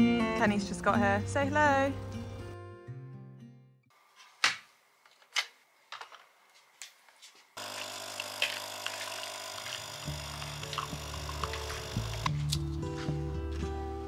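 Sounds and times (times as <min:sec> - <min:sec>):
coffee pouring into mug: 0:07.6 - 0:12.3
coffee machine pump buzzing: 0:07.6 - 0:12.4.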